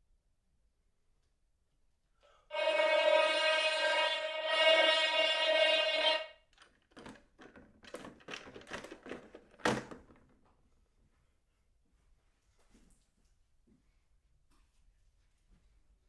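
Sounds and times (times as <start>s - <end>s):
plastic horn steady note: 2.5s - 6.4s
clicks of handled plastic objects: 6.6s - 10.4s.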